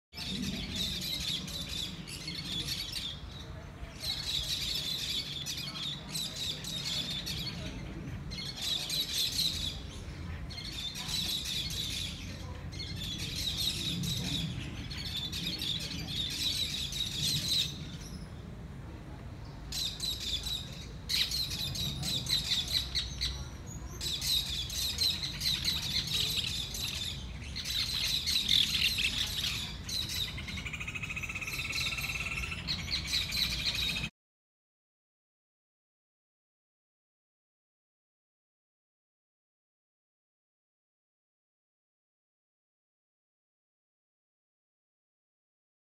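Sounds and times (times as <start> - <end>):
birds chirping rapidly: 0.2 - 18.4, 19.4 - 34.1
steady bird call: 24.0 - 34.1.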